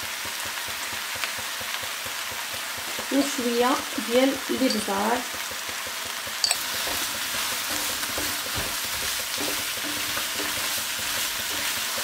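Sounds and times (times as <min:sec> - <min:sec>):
mushrooms and onion sizzling: 0:00.0 - 0:12.0
wooden spatula scraping pan: 0:06.6 - 0:12.0.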